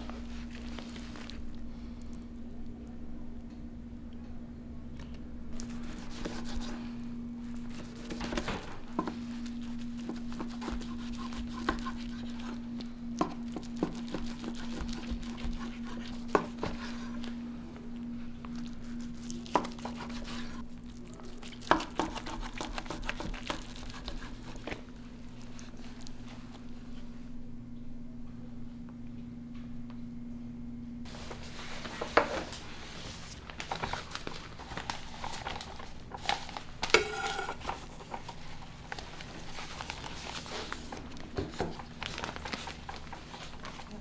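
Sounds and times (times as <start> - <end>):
steady low hum: 0.0 - 44.0
dishes and cutlery clinking: 37.0 - 37.8.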